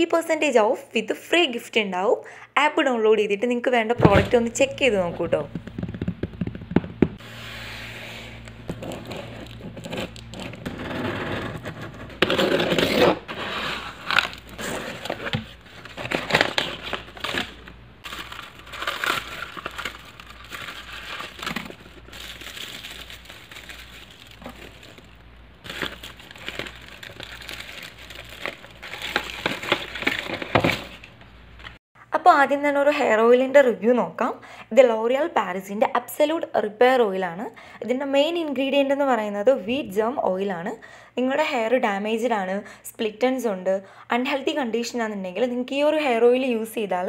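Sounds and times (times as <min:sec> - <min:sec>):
packing paper crinkling and tearing: 0:08.4 - 0:10.8, 0:11.9 - 0:31.8.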